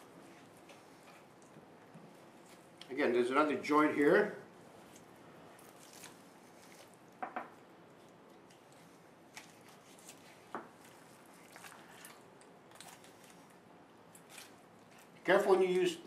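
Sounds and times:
wet squishing of meat: 4.6 - 16.0.

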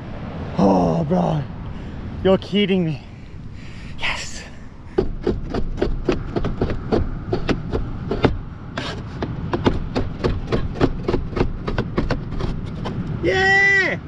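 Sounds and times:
cleaver chopping on plastic board: 4.9 - 13.0.

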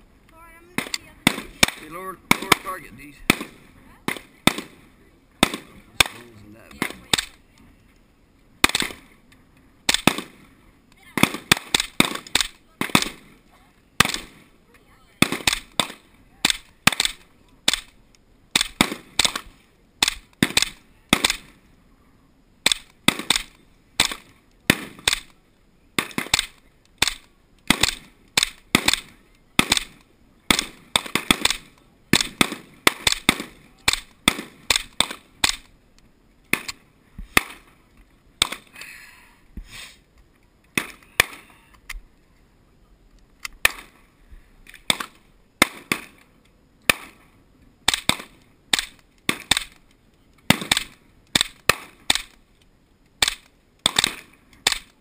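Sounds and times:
rifle shots: 0.7 - 7.4, 8.6 - 9.2, 9.9 - 13.4, 14.0 - 14.5, 15.2 - 21.6, 22.6 - 25.4, 26.0 - 35.7, 36.5 - 37.7, 38.4 - 38.7, 44.8 - 46.2, 46.9 - 47.2, 47.8 - 49.8, 50.5 - 52.4, 53.2 - 55.0.

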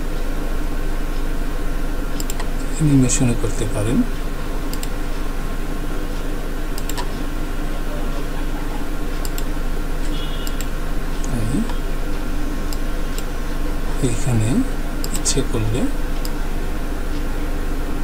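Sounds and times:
low electrical hum and hiss: 0.0 - 18.0
computer mouse clicks: 2.2 - 2.5, 4.7 - 5.0, 6.7 - 7.2, 9.2 - 10.7.

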